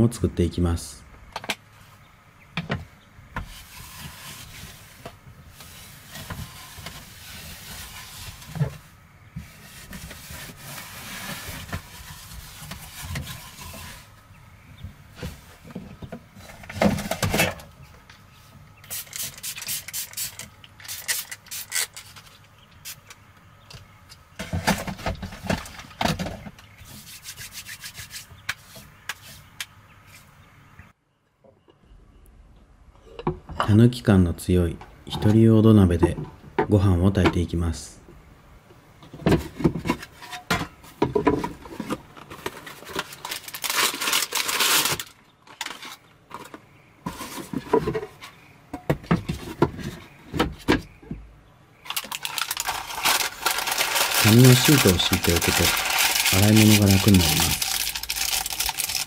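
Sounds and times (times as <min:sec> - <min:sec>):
plastic wrapping crinkling: 0:42.2 - 0:46.0, 0:51.8 - 0:59.0.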